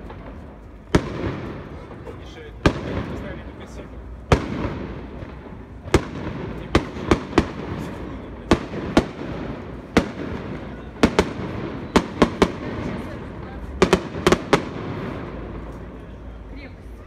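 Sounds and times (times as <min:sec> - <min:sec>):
steady background noise: 0:00.0 - 0:17.0.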